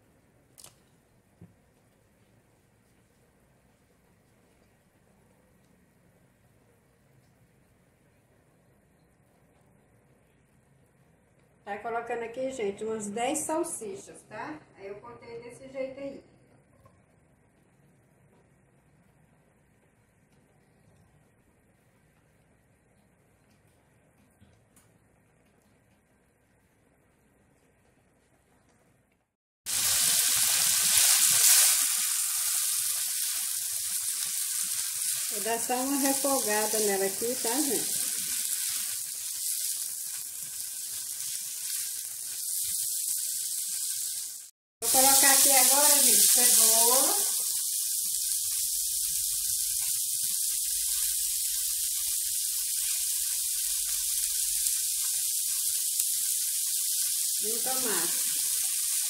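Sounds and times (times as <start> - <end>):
small oil pops: 0.6 - 1.6
sausages sizzling in hot oil: 29.7 - 59.0.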